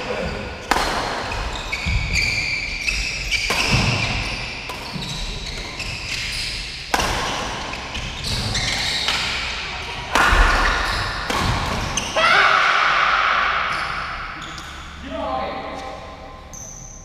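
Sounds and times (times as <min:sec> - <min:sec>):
shoes squeaking on court floor: 0:00.0 - 0:10.0, 0:13.7 - 0:15.0, 0:15.7 - 0:17.0
rackets hitting shuttlecock: 0:00.6 - 0:02.2, 0:02.9 - 0:05.7, 0:06.8 - 0:12.2.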